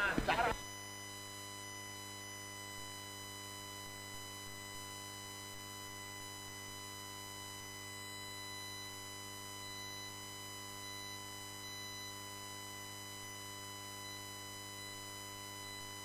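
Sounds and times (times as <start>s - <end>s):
electrical hum and buzz: 0.0s - 16.0s.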